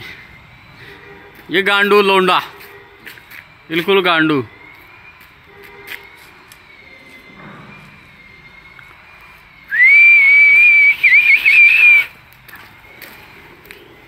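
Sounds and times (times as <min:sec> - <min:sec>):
loud high-pitched whistle: 0:09.7 - 0:12.2.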